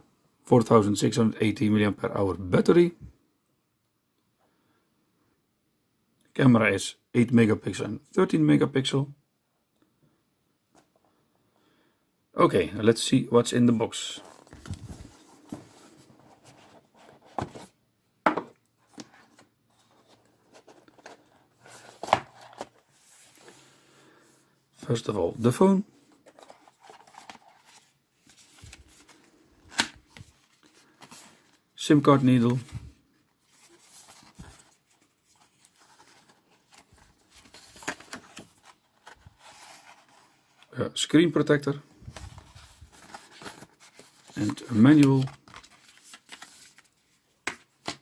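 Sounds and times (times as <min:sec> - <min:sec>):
paper rustling on cardboard: 0:14.2 - 0:17.7, 0:18.9 - 0:23.6, 0:26.1 - 0:31.6, 0:32.4 - 0:40.7, 0:42.0 - 0:48.0.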